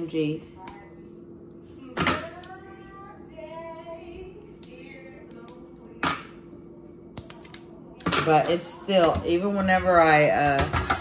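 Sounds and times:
faint background music with singing: 0.0 - 11.0
toffee slab snapping: 7.1 - 7.6.

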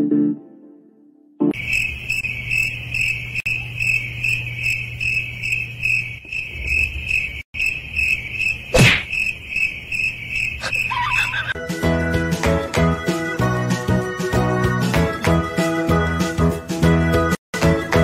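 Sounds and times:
insect chirping trill: 1.5 - 11.6
sharp thump: 8.8 - 9.1.

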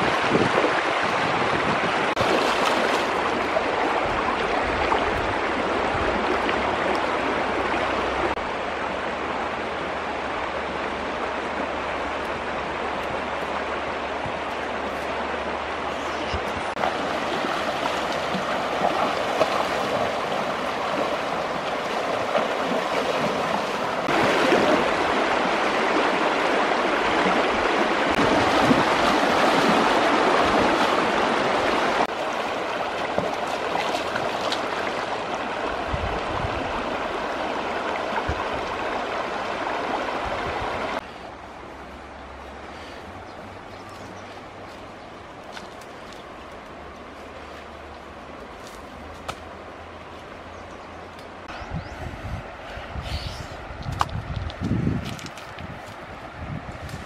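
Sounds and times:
river rushing over stones: 0.0 - 43.7.

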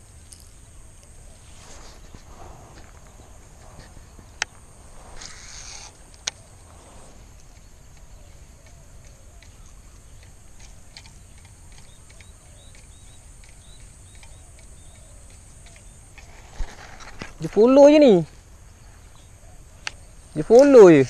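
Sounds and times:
wind rumbling on microphone: 0.0 - 15.1
small ticks: 0.2 - 1.2, 2.0 - 4.6, 7.3 - 17.6
short hiss: 4.9 - 7.4
faint bird chirps: 7.5 - 17.9.

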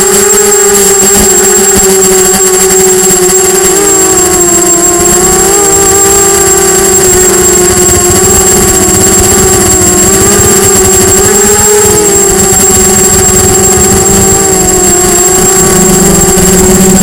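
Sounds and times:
drone propellers whining: 0.0 - 17.0
thin steady high tone: 0.0 - 17.0.

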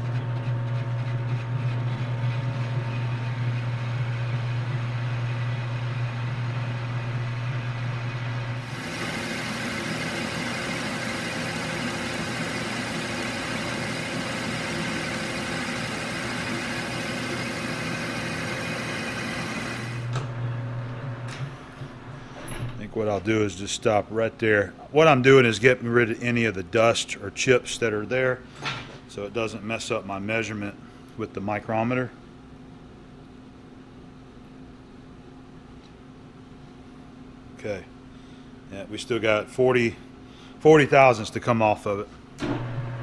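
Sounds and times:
hiss of cutting tool: 8.6 - 20.1
metal lathe humming: 8.6 - 20.1.

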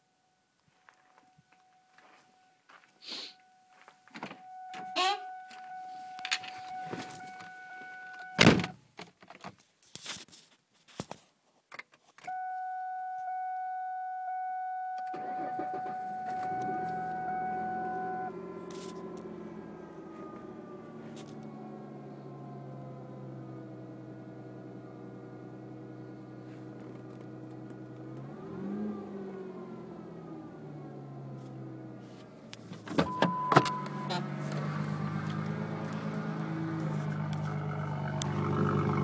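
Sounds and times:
car warning chime: 1.2 - 8.5, 12.3 - 32.0, 33.0 - 36.7
car engine starting and idling: 3.5 - 8.7, 12.3 - 39.0
car door slamming: 8.3 - 8.8, 32.6 - 34.8.

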